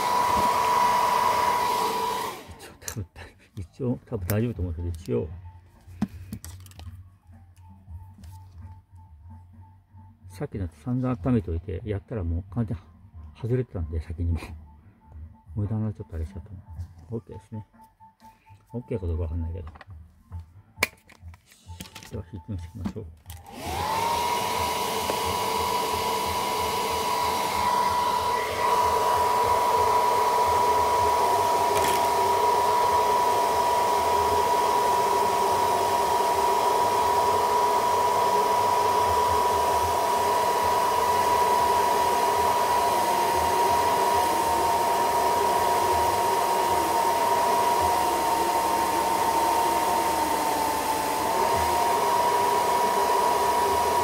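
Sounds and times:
hot-air blower running: 0.0s - 2.8s, 23.3s - 54.0s.

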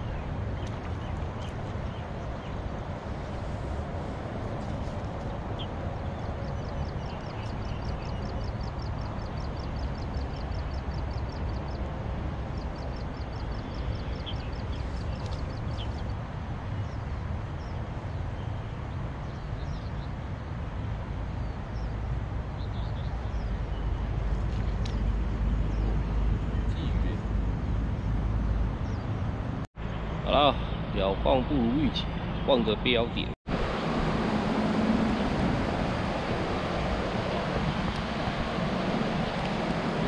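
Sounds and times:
low rumble with hiss: 0.0s - 40.0s.

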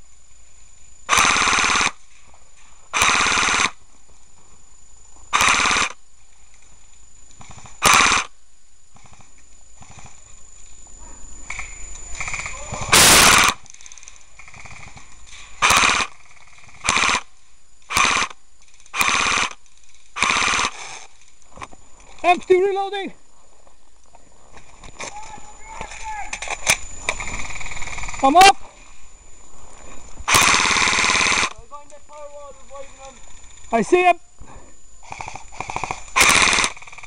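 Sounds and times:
bursts of rapid gunfire: 12.2s - 13.6s, 15.6s - 17.2s, 30.3s - 31.5s, 35.6s - 37.0s.

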